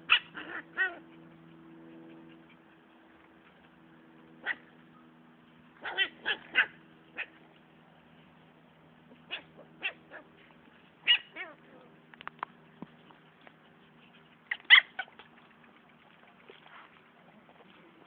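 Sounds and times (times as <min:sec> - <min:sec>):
puppies yipping and barking: 0:00.0 - 0:07.8, 0:09.1 - 0:11.8, 0:12.5 - 0:17.0.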